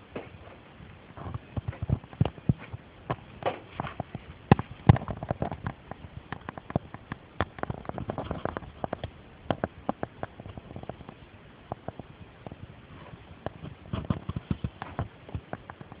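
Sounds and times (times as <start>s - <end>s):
sharp clicks and knocks: 0.1s - 16.0s.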